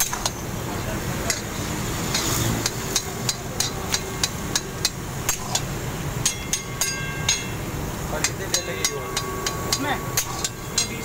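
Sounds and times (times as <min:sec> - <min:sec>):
steady background noise: 0:00.0 - 0:11.0
metal spatula scraping a wok: 0:01.9 - 0:02.9.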